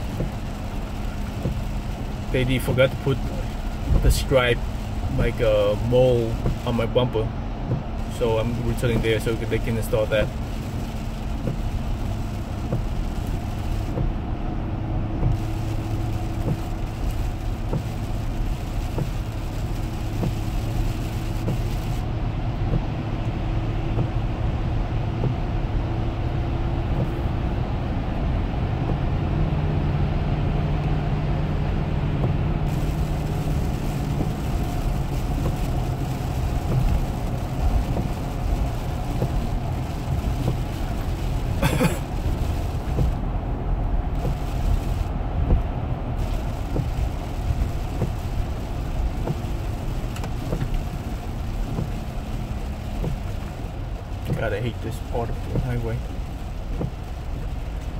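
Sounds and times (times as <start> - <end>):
low engine hum: 0.0 - 57.9
tyre noise on wet road: 0.0 - 57.9
hiss of wet spray: 15.2 - 22.0, 32.7 - 43.2, 44.2 - 45.1, 46.2 - 57.9.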